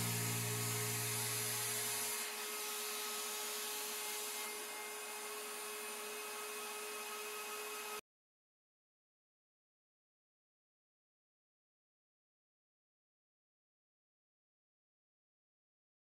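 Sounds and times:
faint hum: 0.0s - 2.0s
machinery hiss: 0.0s - 2.3s.

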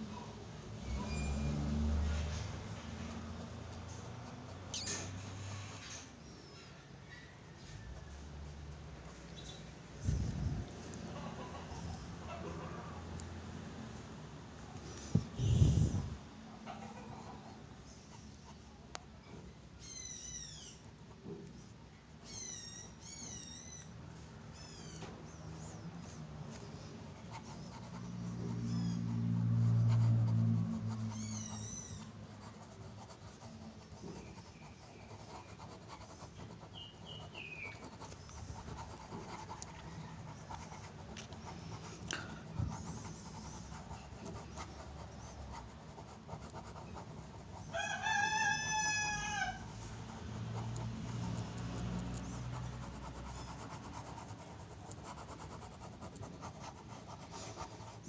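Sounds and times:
faint bird chirps: 4.7s - 8.1s, 19.3s - 20.9s, 22.2s - 25.8s
pen scratching on paper: 14.8s - 16.2s, 25.3s - 58.0s
rooster crowing: 47.7s - 49.8s.

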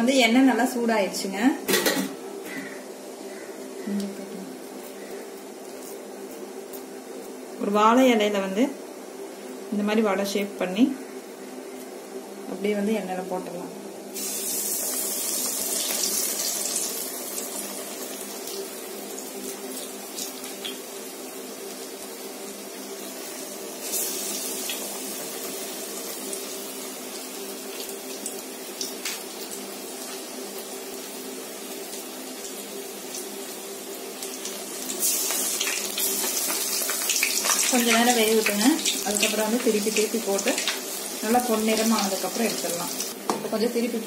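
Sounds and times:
fritters sizzling in hot oil: 14.1s - 44.0s.

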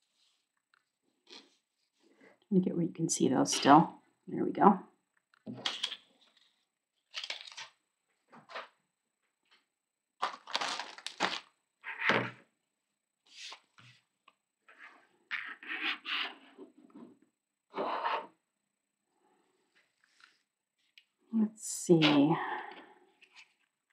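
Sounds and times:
paper and plastic rustling: 5.6s - 7.7s, 10.2s - 11.5s.

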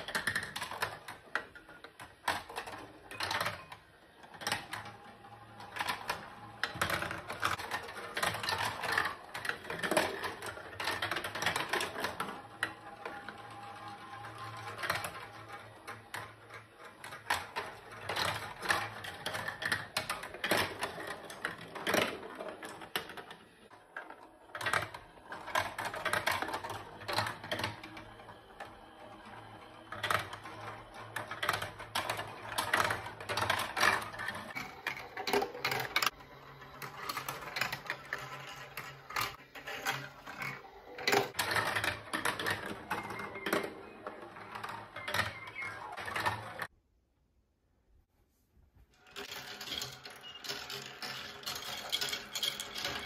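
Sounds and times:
plastic balls rattling in marble run: 0.0s - 46.7s, 48.9s - 53.0s.

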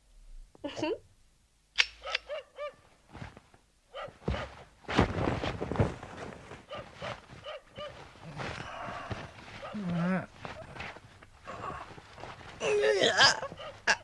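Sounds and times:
rustling and thumps: 2.9s - 12.6s, 13.4s - 13.9s.

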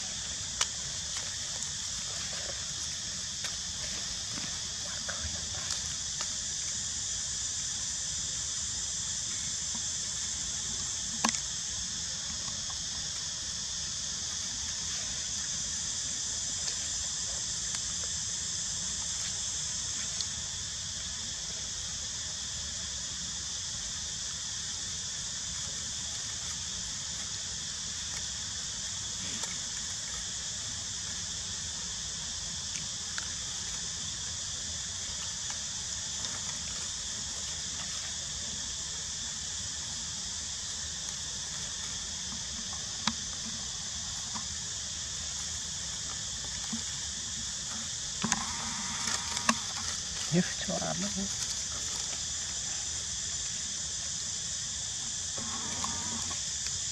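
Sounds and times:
insects chorus drone: 0.0s - 56.9s
faint ticks: 0.5s - 1.8s, 47.7s - 50.4s.

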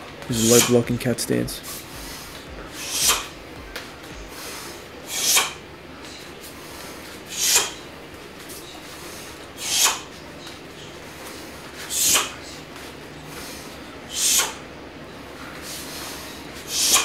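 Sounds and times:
whoosh of air and fabric: 1.6s - 10.1s.

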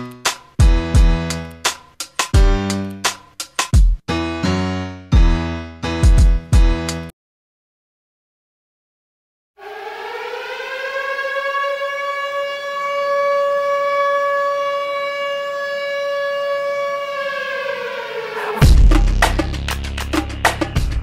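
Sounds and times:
loud drum hit and beat: 0.6s - 1.4s, 2.1s - 2.8s, 3.5s - 4.0s, 18.6s - 21.0s.

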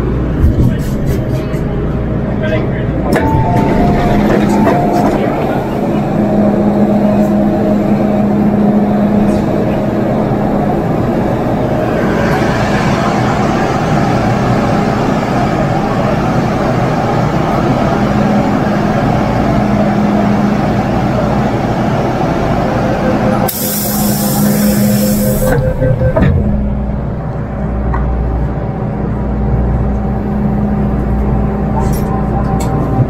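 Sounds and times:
train car running noise: 0.0s - 33.0s
air hiss from pneumatics: 23.5s - 25.5s.

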